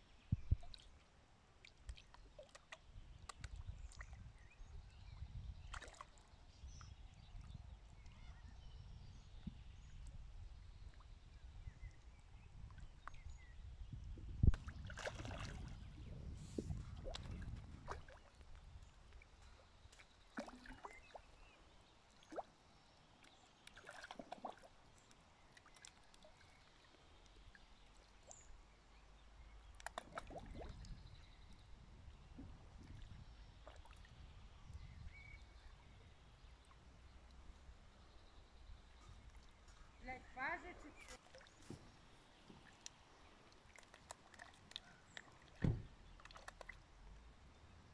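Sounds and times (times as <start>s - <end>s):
fish splashing and slurping: 0.4s - 8.2s, 14.5s - 38.2s, 41.0s - 47.7s
sharp thump: 45.6s - 45.8s.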